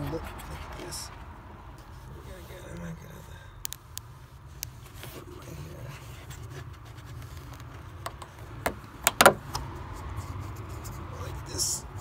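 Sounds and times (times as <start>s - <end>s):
sharp clicks: 3.6s - 4.8s.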